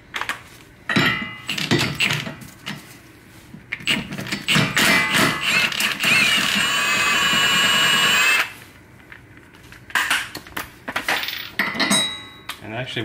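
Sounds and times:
impact wrench hammering: 0:03.9 - 0:08.4.

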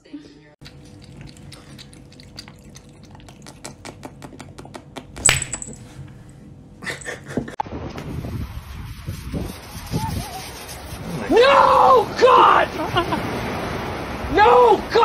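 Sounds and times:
cat lapping water: 0:00.6 - 0:04.6
clinks against glass: 0:05.2 - 0:05.9.

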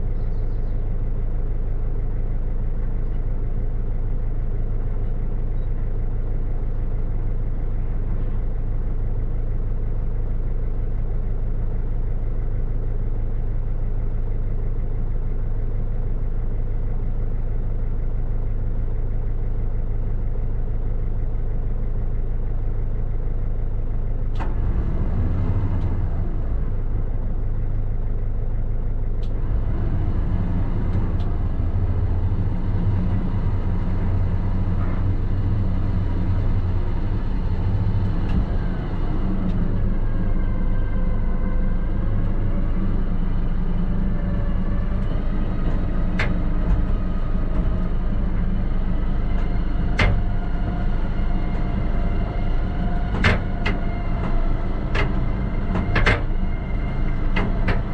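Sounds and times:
rough mechanical running noise: 0:00.0 - 0:57.9
truck engine idling: 0:00.0 - 0:57.9
click: 0:24.3 - 0:24.6.

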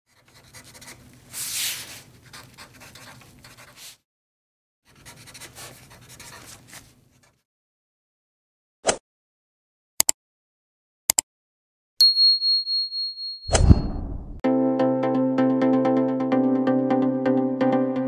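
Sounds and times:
pencil scratching on paper: 0:00.1 - 0:04.0, 0:04.9 - 0:07.4.

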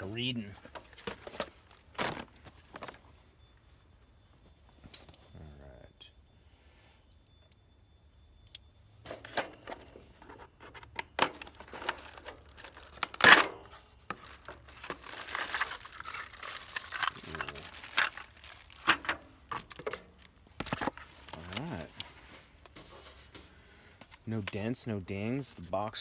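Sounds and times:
plastic crinkling: 0:11.3 - 0:22.7.

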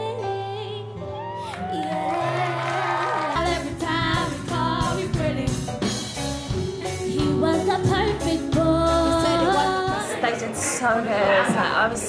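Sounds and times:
woman singing: 0:00.0 - 0:05.9, 0:06.6 - 0:12.0
drums on a regular beat: 0:03.7 - 0:10.1.

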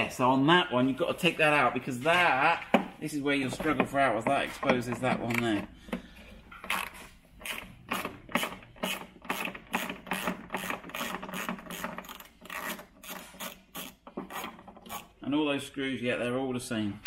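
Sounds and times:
socket ratchet clicking: 0:06.6 - 0:15.1.

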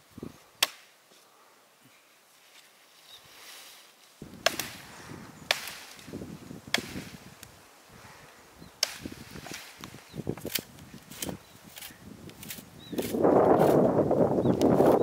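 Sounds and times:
blade chopping into wood: 0:04.4 - 0:04.9, 0:05.5 - 0:06.1, 0:06.7 - 0:07.2, 0:08.8 - 0:09.7.

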